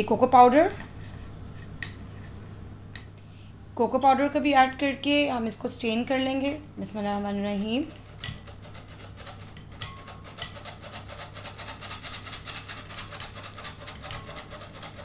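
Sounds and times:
flour sifter rasping: 6.8s - 15.0s.

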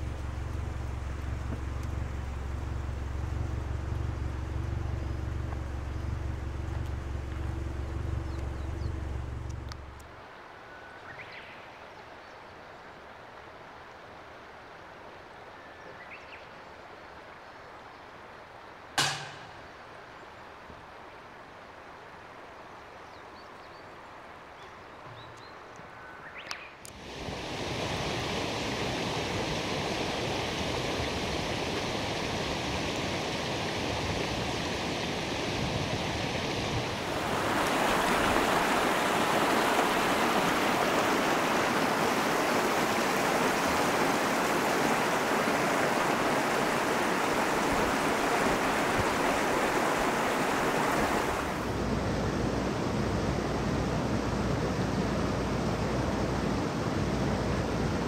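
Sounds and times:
stream rushing over rocks: 26.9s - 52.1s.

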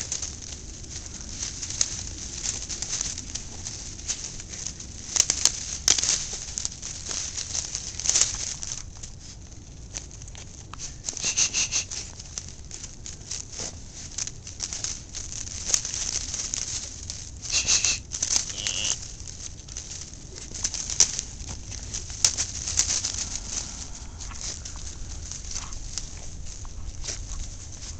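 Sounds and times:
leaves rustling: 0.0s - 27.9s
twigs crackling and snapping: 0.0s - 27.9s
high squeaks: 11.2s - 12.0s, 17.5s - 19.0s.

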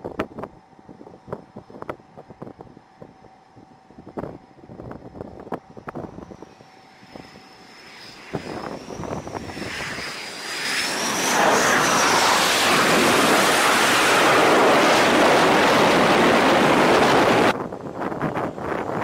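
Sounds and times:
high turbine whine: 0.0s - 19.0s
jet engine roar: 5.7s - 19.0s.

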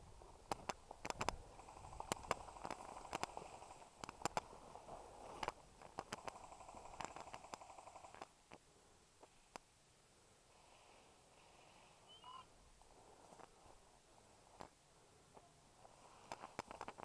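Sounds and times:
brush rustling: 0.0s - 6.4s.

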